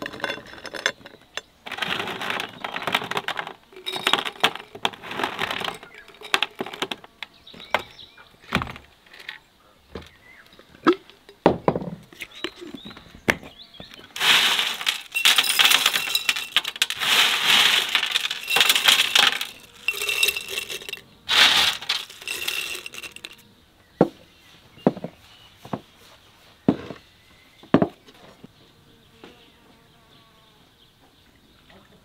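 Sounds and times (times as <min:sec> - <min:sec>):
dried fruit dropping into glass jar: 0:00.0 - 0:07.0, 0:14.2 - 0:23.4
glass jars set on wooden table: 0:14.2 - 0:23.4.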